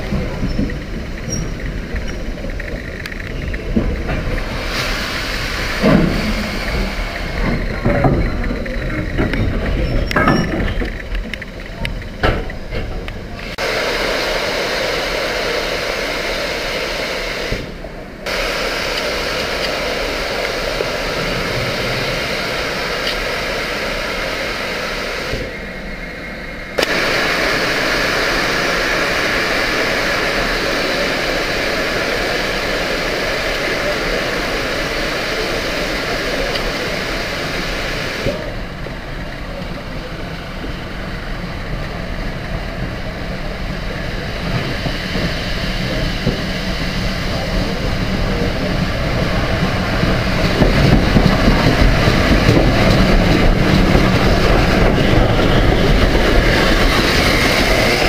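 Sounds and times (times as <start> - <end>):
steam locomotive hissing steam: 0.0 - 10.7, 13.2 - 58.0
metal knocks and clanks: 5.8 - 13.1.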